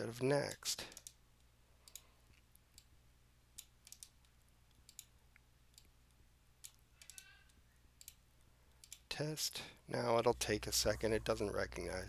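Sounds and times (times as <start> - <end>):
low steady hum: 0.0 - 12.0
computer mouse clicks: 0.9 - 1.2, 1.8 - 2.9, 3.6 - 5.1, 6.6 - 9.1.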